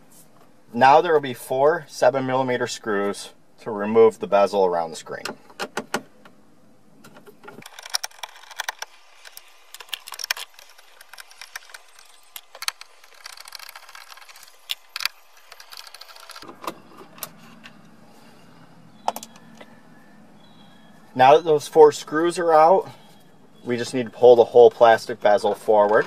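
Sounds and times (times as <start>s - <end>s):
nut driver clicking and scraping: 7.1s - 17.7s.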